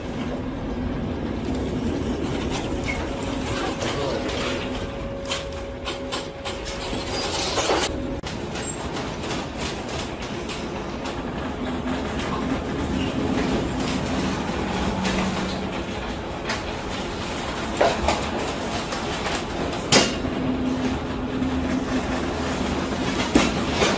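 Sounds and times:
steady hum: 0.0s - 8.6s
wind and heavy seas rumbling: 0.0s - 23.9s.

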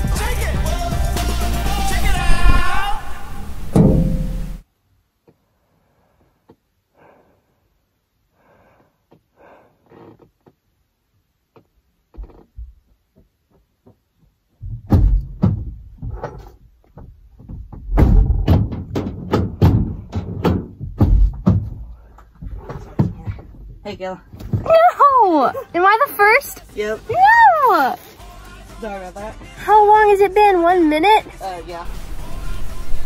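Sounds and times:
thumps and knocks on car body: 3.8s - 4.4s, 14.6s - 24.7s.

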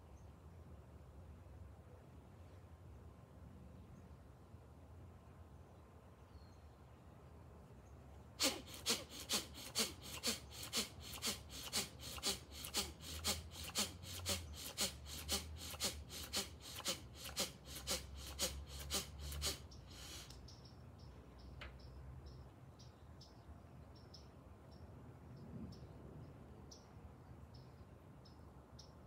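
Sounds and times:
man breathing forcefully: 8.4s - 20.3s.

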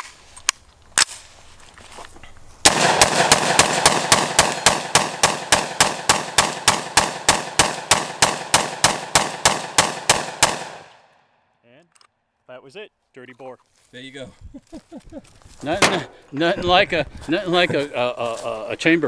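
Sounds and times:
gunshots echoing: 2.6s - 11.1s, 15.8s - 16.3s.

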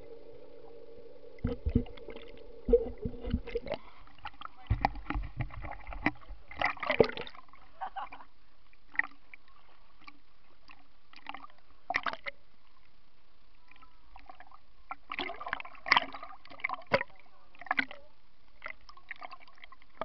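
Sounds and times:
pool water sloshing and splashing: 0.0s - 8.3s, 13.7s - 20.0s.

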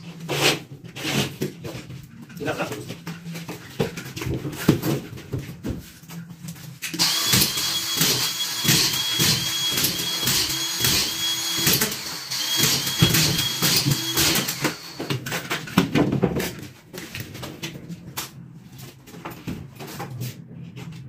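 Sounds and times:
plasterboard knocks and clatter: 2.8s - 6.0s, 15.1s - 17.9s
power screwdriver whining: 7.0s - 15.2s.

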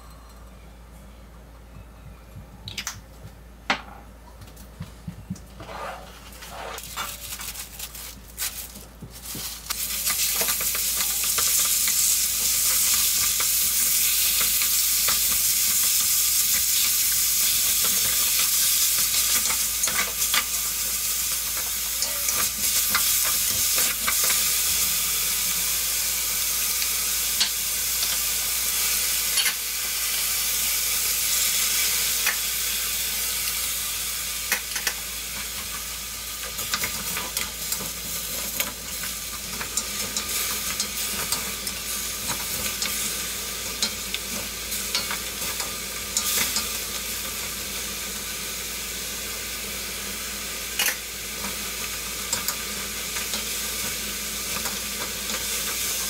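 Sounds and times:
wooden spatula scraping a wok: 5.6s - 7.0s
food sizzling in oil: 9.2s - 56.0s.

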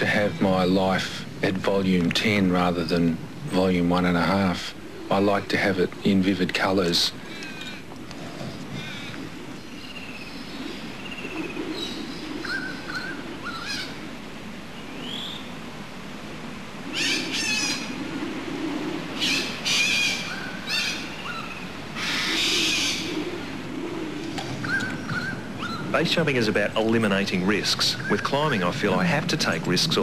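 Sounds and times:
low background noise: 0.0s - 30.0s
birds chirping and whistling: 7.2s - 15.6s, 16.9s - 30.0s
rapid chattering bird calls: 16.9s - 30.0s.

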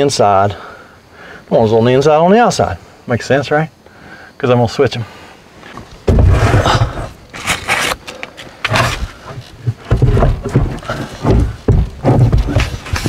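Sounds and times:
low thumps: 6.0s - 7.2s, 8.7s - 13.0s
battery case scraping metal: 6.3s - 9.6s.

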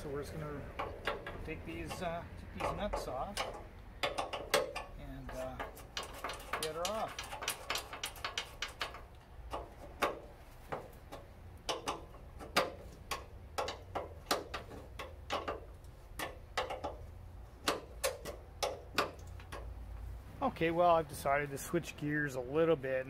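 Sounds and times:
wrench clicking on nuts: 0.7s - 19.7s.

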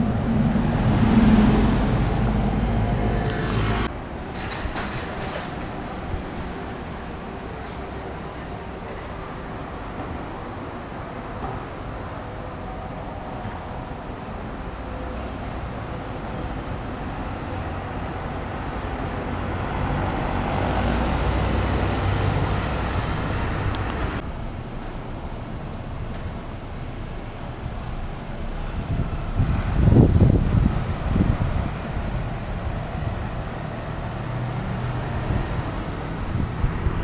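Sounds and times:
bus passing: 0.0s - 37.0s
traffic noise: 0.0s - 37.0s.

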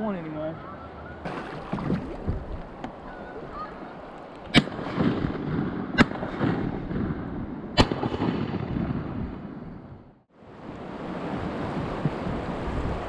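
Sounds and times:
faint bird calls: 0.3s - 1.3s
river water rushing: 1.2s - 4.4s
shotgun shots: 4.5s - 9.6s.

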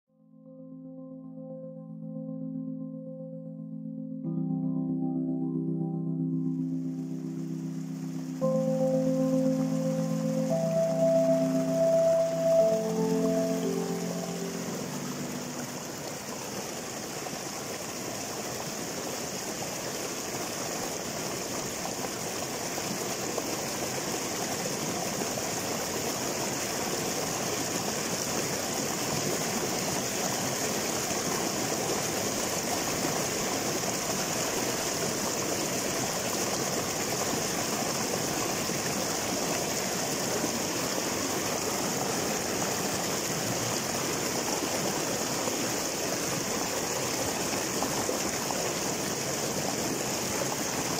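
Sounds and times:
river water rushing over rocks: 7.0s - 50.9s.

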